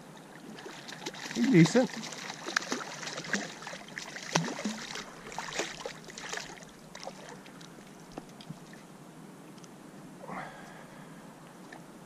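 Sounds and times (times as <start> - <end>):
river water lapping: 0.0 - 8.9
fish splashing in water: 0.4 - 7.6.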